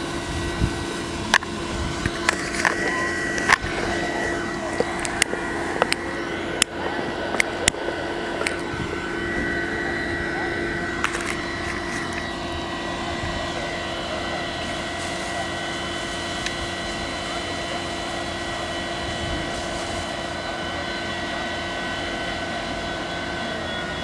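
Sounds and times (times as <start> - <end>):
engine drone: 0.0 - 24.0
high steady whines: 0.0 - 24.0.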